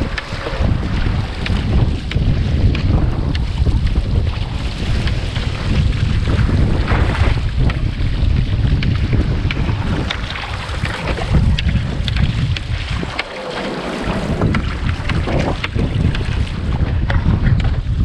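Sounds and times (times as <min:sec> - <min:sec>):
ocean water splashing: 0:00.0 - 0:18.0
wind buffeting microphone: 0:00.0 - 0:18.0.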